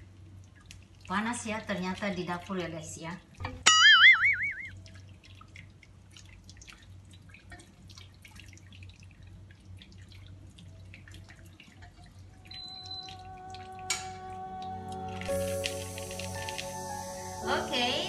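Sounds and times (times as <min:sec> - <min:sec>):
low steady hum: 0:00.0 - 0:18.0
liquid dripping into pot: 0:03.4 - 0:16.8.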